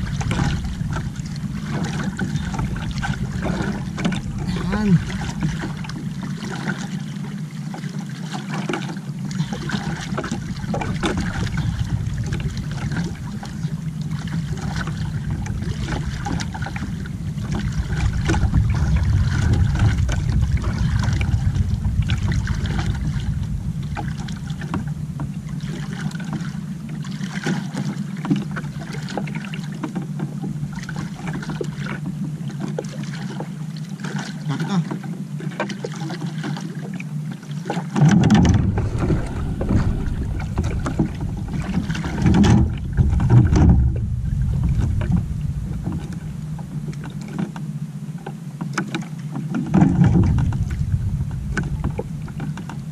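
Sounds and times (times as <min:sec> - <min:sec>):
wind buffeting microphone: 0:00.0 - 0:07.0, 0:09.5 - 0:26.9, 0:38.2 - 0:47.6, 0:49.7 - 0:52.9
water lapping against hull: 0:00.0 - 0:52.9.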